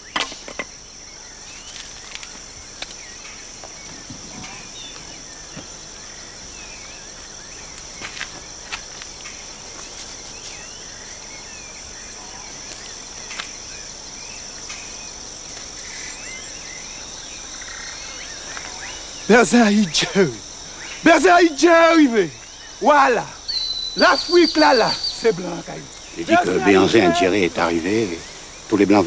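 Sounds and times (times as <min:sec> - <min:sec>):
insect chorus chirping: 0:00.0 - 0:29.0.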